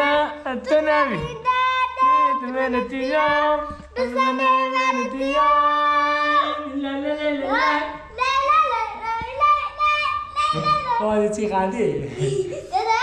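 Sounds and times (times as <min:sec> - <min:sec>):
child singing: 0:00.7 - 0:11.1.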